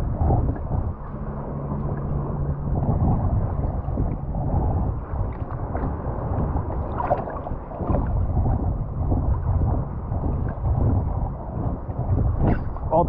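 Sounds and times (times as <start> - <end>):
wind rumbling on microphone: 0.0 - 13.0
small waves lapping: 5.0 - 8.4
small water splashes: 5.0 - 8.7.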